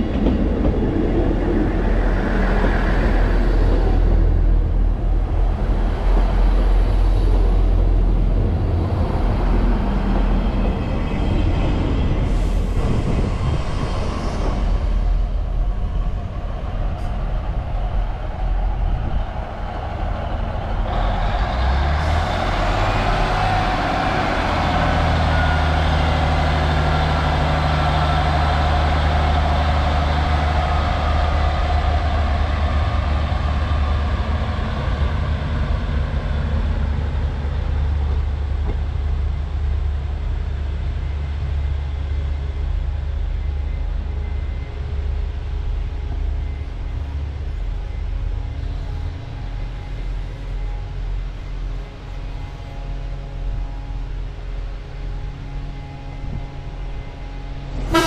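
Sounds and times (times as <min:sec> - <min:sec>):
train wheels rumbling: 0:00.0 - 0:58.0
diesel engine humming: 0:19.4 - 0:58.0.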